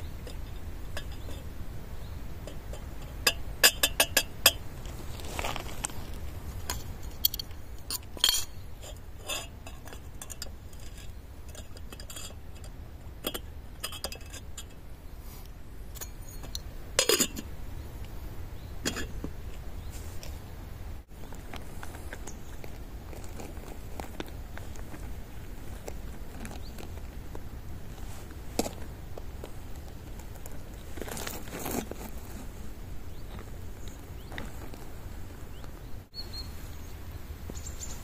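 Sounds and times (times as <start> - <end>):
metal cookware clinking: 2.5 - 4.6, 6.8 - 12.7, 16.0 - 17.4.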